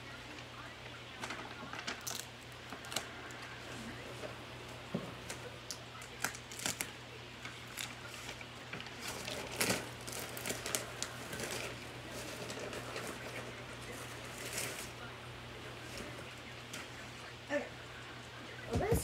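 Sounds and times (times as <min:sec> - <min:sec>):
paper rustling and crinkling: 0:01.1 - 0:04.4, 0:05.1 - 0:15.1, 0:15.7 - 0:17.3.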